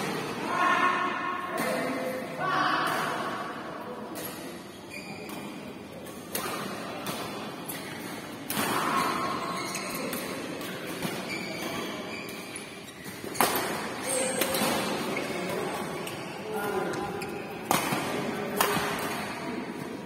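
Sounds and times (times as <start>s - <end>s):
players' voices: 0.0s - 20.0s
rackets hitting shuttlecock: 5.3s - 20.0s.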